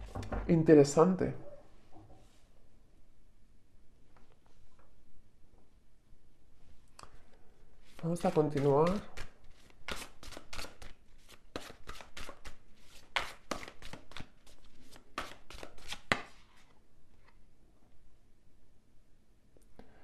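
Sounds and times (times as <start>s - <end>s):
cards shuffling: 7.8s - 17.4s.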